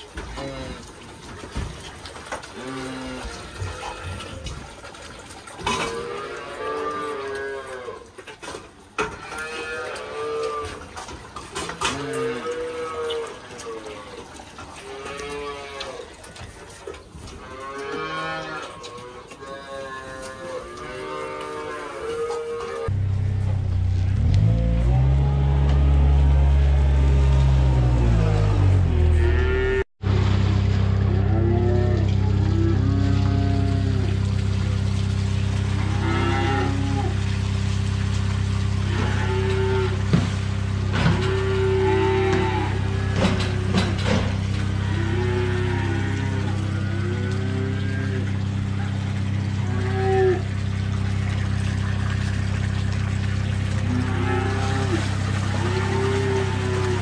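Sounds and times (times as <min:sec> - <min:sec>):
calves mooing: 0:02.5 - 0:04.8, 0:05.6 - 0:08.2, 0:09.0 - 0:10.9, 0:11.6 - 0:16.2, 0:17.3 - 0:22.9, 0:24.1 - 0:29.9, 0:31.0 - 0:34.3, 0:35.7 - 0:37.3, 0:38.8 - 0:40.2, 0:40.9 - 0:51.4, 0:53.0 - 0:57.0
steady low hum: 0:22.8 - 0:57.0.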